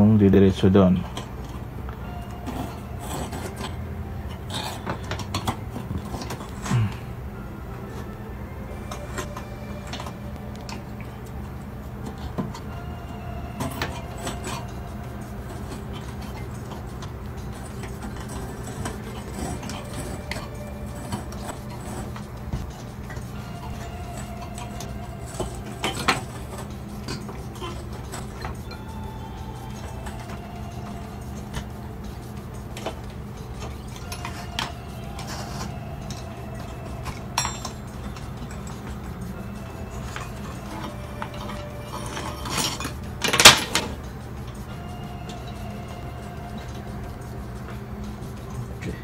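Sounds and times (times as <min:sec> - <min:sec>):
metal tools clinking on wood: 0:00.0 - 0:07.0, 0:13.6 - 0:45.7
steady low hum: 0:00.0 - 0:49.0
wires clicking and rustling: 0:00.0 - 0:49.0.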